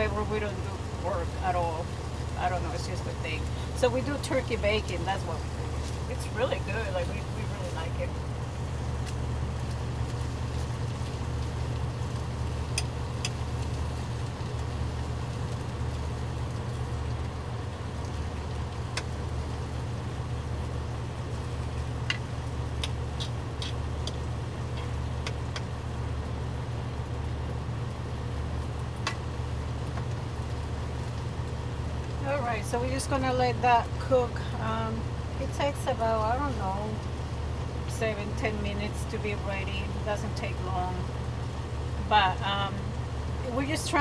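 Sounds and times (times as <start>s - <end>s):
diesel truck engine idling: 0.0s - 44.0s
bacon popping in a pan: 8.6s - 26.5s.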